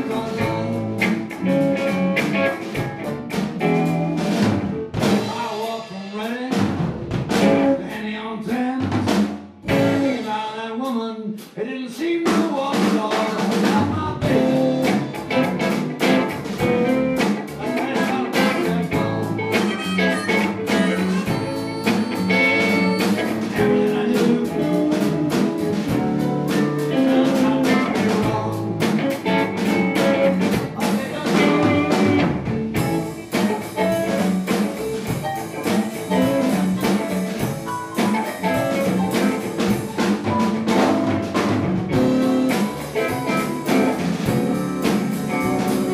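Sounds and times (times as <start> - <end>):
electric bass: 0.0 - 5.8, 6.5 - 8.0, 9.0 - 10.5, 13.6 - 45.9
electric guitar: 0.0 - 8.2, 9.1 - 10.5, 13.4 - 45.9
drum kit: 0.0 - 45.9
keyboard: 14.0 - 45.9
harmonica: 18.4 - 25.9, 42.0 - 45.9.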